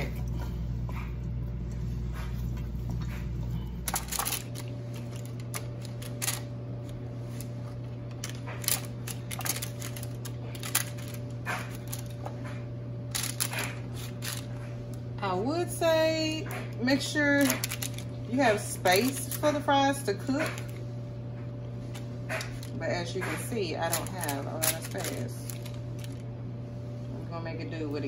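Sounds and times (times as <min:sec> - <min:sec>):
steady hum: 0:00.0 - 0:28.0
light taps and crinkles: 0:21.4 - 0:26.2.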